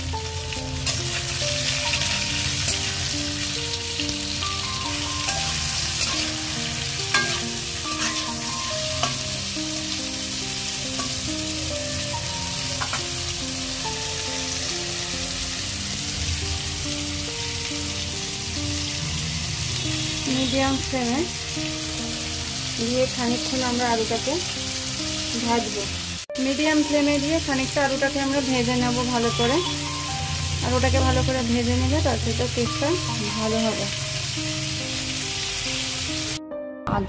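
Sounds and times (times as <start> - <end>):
potatoes sizzling in hot oil: 0.0 - 36.4
soft background music: 0.0 - 37.0.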